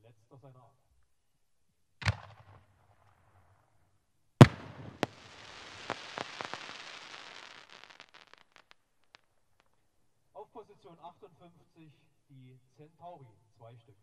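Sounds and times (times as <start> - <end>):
sharp crack: 2.0 - 2.6, 4.4 - 9.3
firework shell bursting bang: 4.4 - 7.6
firework mortar launch thump: 4.4 - 8.6
hissing crackling trail with pops: 4.4 - 9.8.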